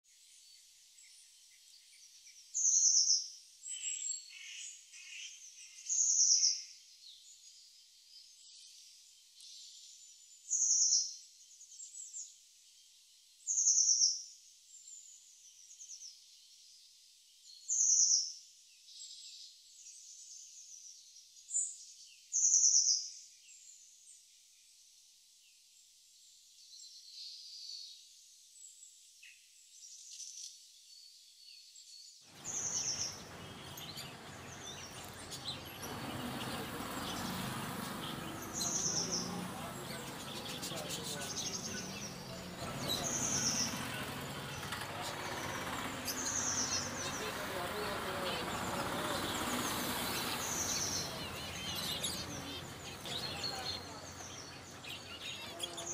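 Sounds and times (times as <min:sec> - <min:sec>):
soft bird chirps: 0:26.6 - 0:55.9.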